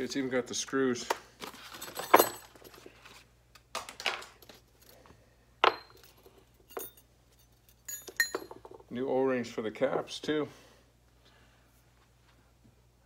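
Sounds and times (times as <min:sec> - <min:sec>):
small parts clinking on workbench: 0:05.6 - 0:08.9.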